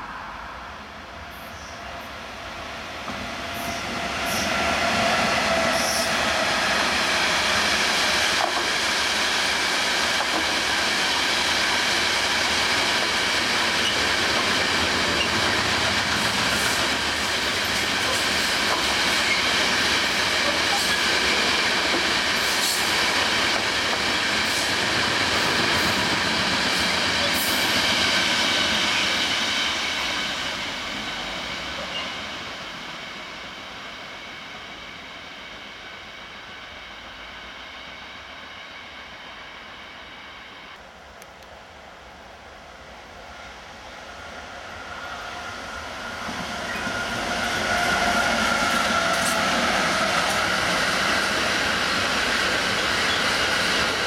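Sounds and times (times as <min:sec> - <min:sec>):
freight train wheels rumbling: 0:01.0 - 0:39.8, 0:41.0 - 0:54.0
clicks of train wheels: 0:05.7 - 0:30.1, 0:46.2 - 0:54.0.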